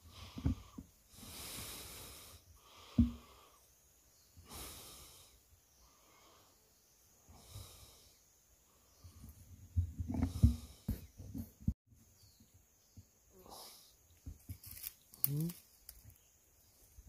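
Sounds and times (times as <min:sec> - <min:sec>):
person breathing slowly: 0:00.0 - 0:03.8, 0:04.4 - 0:09.3, 0:10.2 - 0:11.1
dull thumps: 0:02.9 - 0:03.3.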